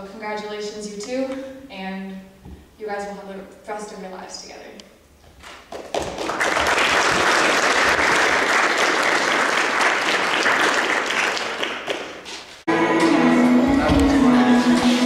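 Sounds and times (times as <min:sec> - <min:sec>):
crowd applauding: 0:05.7 - 0:12.4.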